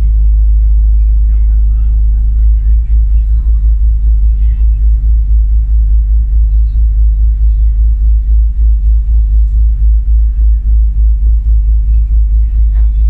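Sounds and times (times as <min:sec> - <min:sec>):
boat engine rumble: 0:00.0 - 0:13.0.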